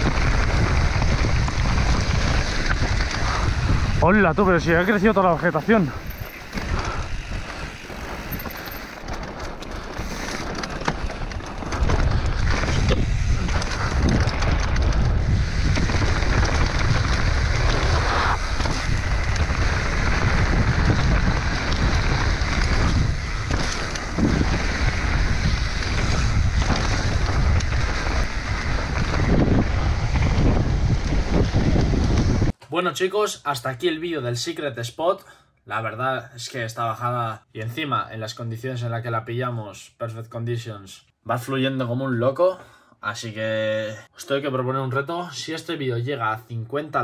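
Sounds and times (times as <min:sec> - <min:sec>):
tyres rolling on dirt: 0:00.0 - 0:32.5
bike knocking and rattling: 0:00.0 - 0:32.6
wind rushing over microphone: 0:00.0 - 0:32.6.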